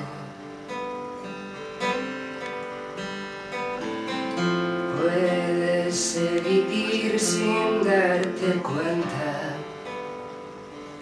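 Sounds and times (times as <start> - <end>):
acoustic guitar strummed chords: 0.0 - 11.0.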